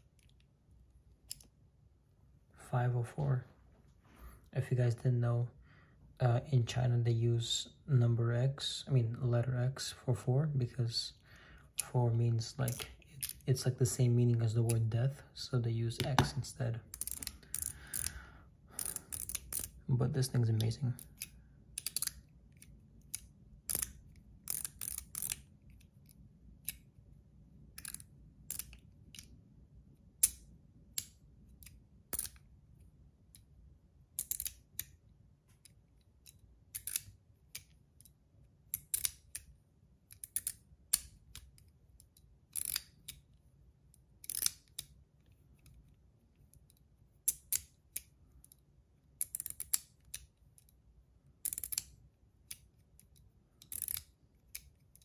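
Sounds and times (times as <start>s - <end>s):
metal fidget toy clicking: 18.8s - 19.8s, 21.0s - 22.2s, 23.1s - 25.5s, 27.8s - 29.3s, 42.5s - 43.2s, 44.2s - 44.9s, 49.2s - 50.7s, 51.4s - 55.0s.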